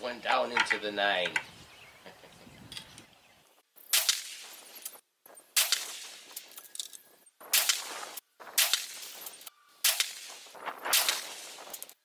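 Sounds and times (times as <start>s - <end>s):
rifle shots: 3.9s - 4.6s, 5.6s - 6.4s, 7.4s - 11.8s.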